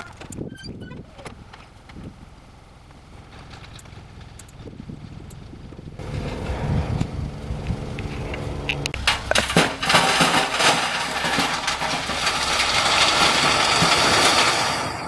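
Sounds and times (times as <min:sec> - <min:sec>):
dump truck engine humming: 0:00.0 - 0:15.0
rocks clattering out of truck bed: 0:09.0 - 0:15.0.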